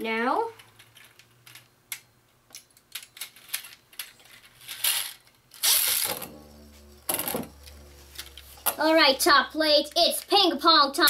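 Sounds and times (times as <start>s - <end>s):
spinning top clattering: 3.4s - 8.8s
spinning top ringing: 5.6s - 10.0s.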